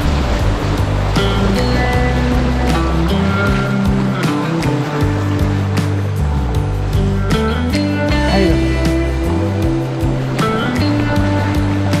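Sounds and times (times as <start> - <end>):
music with steady beat: 0.0 - 12.0
rushing whitewater: 0.0 - 12.0.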